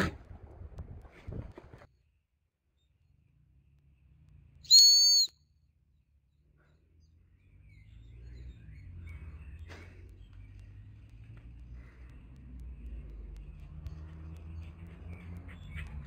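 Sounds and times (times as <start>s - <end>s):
dog whistle blast: 4.7s - 5.3s.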